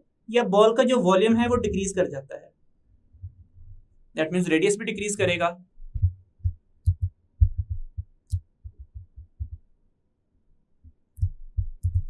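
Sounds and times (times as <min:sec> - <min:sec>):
soft low thumps: 0:03.1 - 0:03.9, 0:05.0 - 0:09.7, 0:11.2 - 0:12.0.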